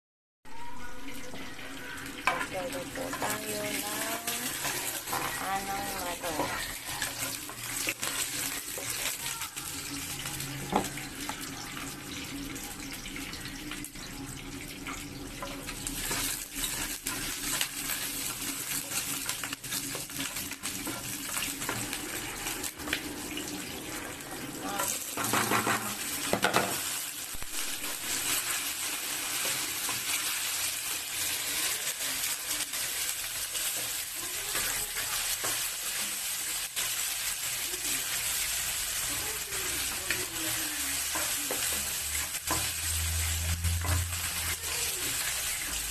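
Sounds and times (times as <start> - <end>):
shallots sizzling in hot oil: 0.5 - 45.9
spatula scraping pan: 2.1 - 9.2, 23.6 - 26.9.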